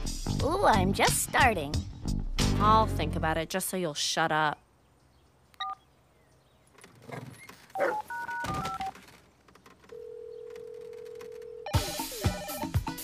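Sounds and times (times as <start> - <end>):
phone keypad beeps: 5.6 - 5.8, 7.8 - 8.9
handling noise: 6.6 - 11.5
phone ringing tone: 7.8 - 9.0, 9.9 - 12.1.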